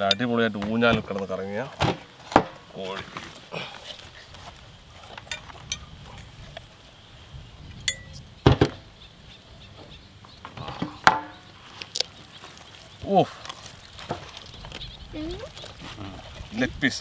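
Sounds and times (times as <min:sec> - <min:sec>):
metallic ring: 0:07.9 - 0:08.2.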